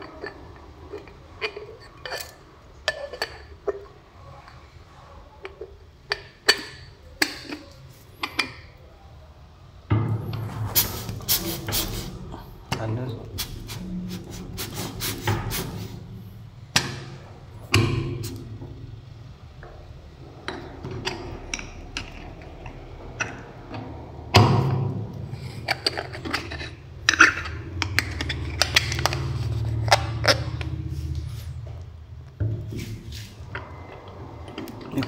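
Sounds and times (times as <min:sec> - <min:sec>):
low hum: 0:09.9 - 0:35.0.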